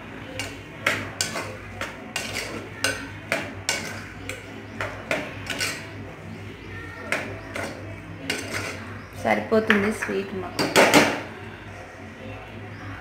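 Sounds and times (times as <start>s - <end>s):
metal spoon scraping a pot: 0.2s - 6.2s, 7.0s - 9.2s.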